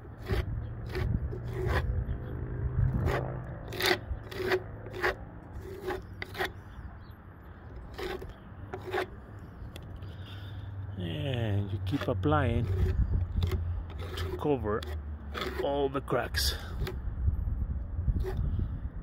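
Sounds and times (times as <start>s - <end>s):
putty knife scraping wood: 0.0s - 2.0s, 2.9s - 6.6s, 7.7s - 9.8s, 11.7s - 15.8s, 16.5s - 17.0s, 18.2s - 18.4s.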